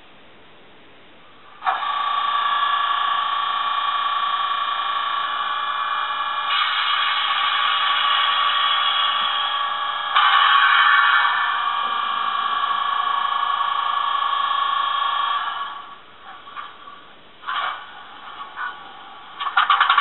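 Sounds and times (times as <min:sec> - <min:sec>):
diesel engine sound through small speakers: 0:01.4 - 0:20.0.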